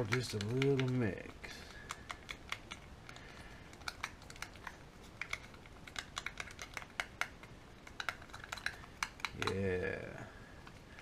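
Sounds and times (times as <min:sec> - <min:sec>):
stirrer tapping plastic cup: 0:00.0 - 0:03.2.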